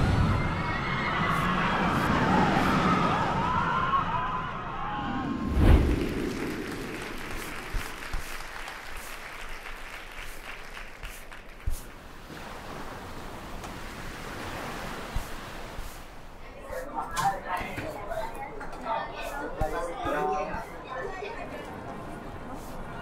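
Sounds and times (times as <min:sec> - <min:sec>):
crowd applauding: 0:05.9 - 0:11.8.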